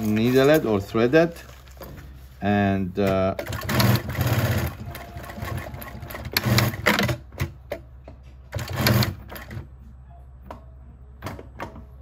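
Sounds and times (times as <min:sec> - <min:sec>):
sewing machine stitching: 0:03.3 - 0:07.6, 0:08.5 - 0:09.7.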